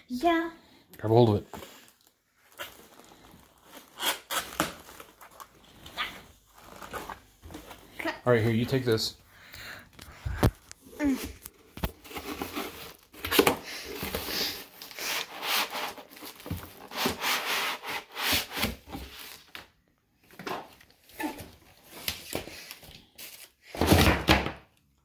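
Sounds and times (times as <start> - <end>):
packaging rubbing and crinkling: 1.7 - 8.0.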